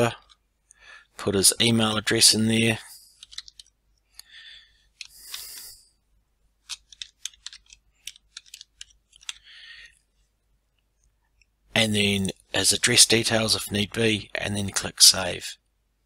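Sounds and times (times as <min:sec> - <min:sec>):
faint hissing: 0:04.1 - 0:06.1.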